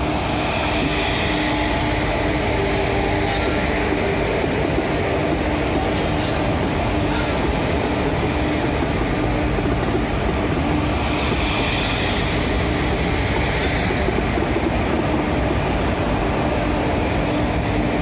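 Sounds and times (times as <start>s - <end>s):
train wheels rumbling and clattering: 0.0s - 18.0s.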